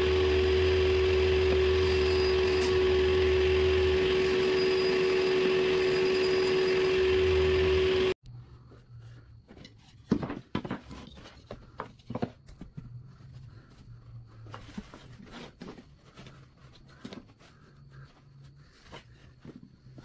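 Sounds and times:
wooden boards knocking and clattering: 10.0s - 12.6s.

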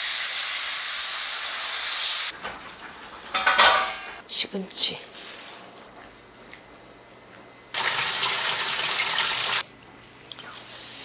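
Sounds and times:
tap water running: 0.0s - 4.2s, 7.8s - 9.6s.

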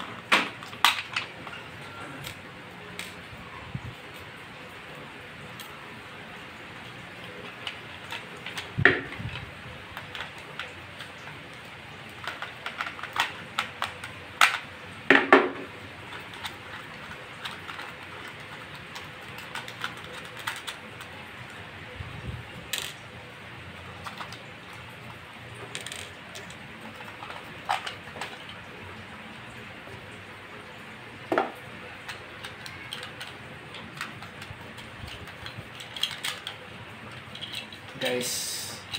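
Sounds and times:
clock parts clicking on wooden table: 22.7s - 23.0s, 25.7s - 28.6s, 32.1s - 37.8s.

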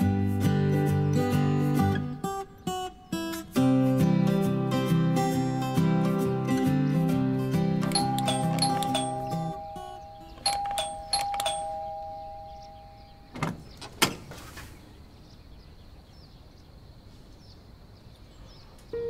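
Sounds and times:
two-tone doorbell chime: 7.8s - 13.4s
door lock clunks: 7.8s - 14.3s.

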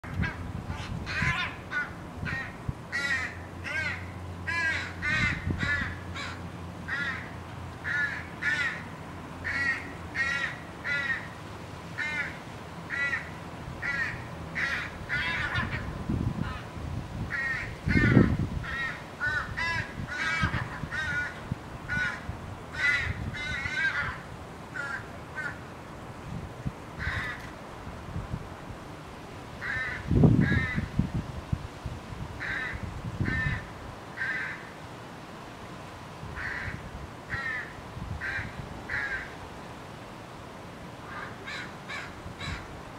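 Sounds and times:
young crow begging calls: 0.0s - 11.4s, 12.0s - 16.7s, 17.3s - 25.6s, 27.0s - 27.5s, 29.6s - 30.9s, 32.4s - 34.7s, 36.4s - 39.4s, 41.0s - 42.7s.

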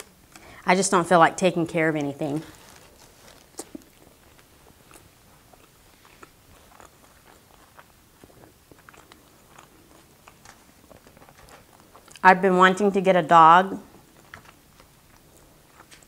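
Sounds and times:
faint chewing: 1.6s - 12.3s, 13.8s - 16.0s.

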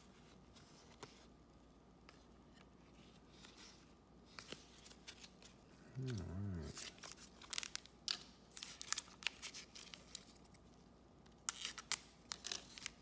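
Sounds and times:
cards being shuffled: 2.1s - 10.6s.

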